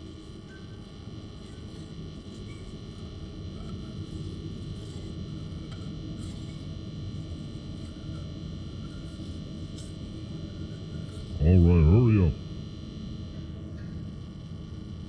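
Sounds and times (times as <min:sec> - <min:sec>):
low rumbling drone: 0:11.3 - 0:12.5
faint high tones: 0:11.4 - 0:12.4.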